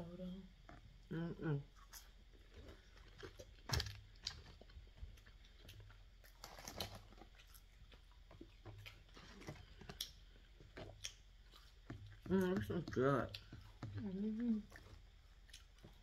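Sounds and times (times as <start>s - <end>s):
chewing and crunching: 0.6s - 16.0s
small clicks and crackles: 1.9s - 11.2s.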